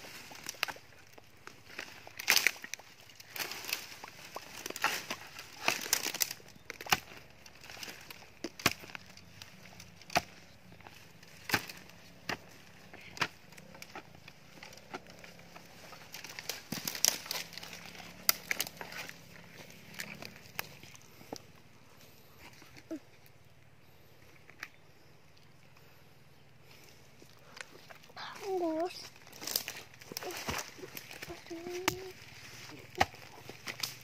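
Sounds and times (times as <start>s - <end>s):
twigs snapping: 0.1s - 21.5s, 26.7s - 34.0s
footsteps crunching through leaves: 27.7s - 34.0s.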